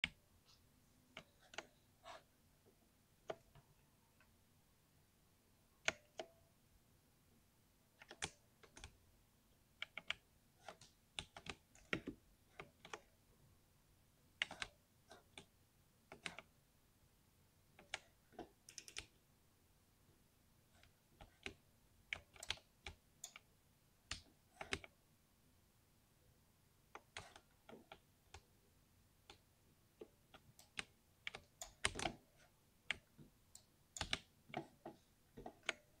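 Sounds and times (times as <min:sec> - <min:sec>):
mechanical keyboard typing: 0:08.0 - 0:09.0, 0:09.8 - 0:13.1, 0:14.4 - 0:15.5, 0:17.8 - 0:19.2, 0:21.2 - 0:23.5, 0:30.3 - 0:32.2, 0:33.9 - 0:34.8.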